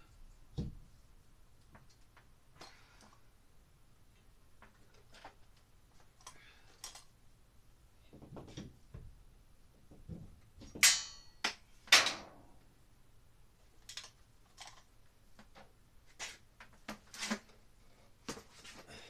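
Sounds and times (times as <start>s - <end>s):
sharp metallic clanks: 10.8s - 12.4s.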